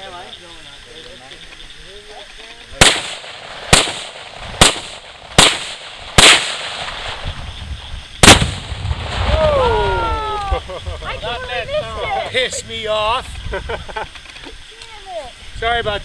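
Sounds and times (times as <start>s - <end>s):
rifle shots: 2.8s - 7.4s, 8.2s - 9.2s.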